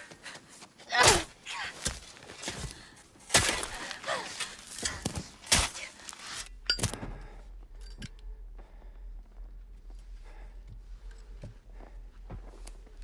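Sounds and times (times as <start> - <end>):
steady low hum: 2.9 - 13.0
shovel striking earth: 3.2 - 7.0.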